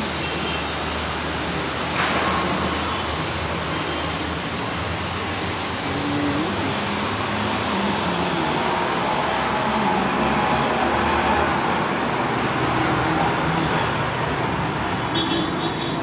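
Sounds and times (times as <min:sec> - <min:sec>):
road traffic rush: 0:00.0 - 0:16.0
faint engine drone: 0:05.2 - 0:11.5.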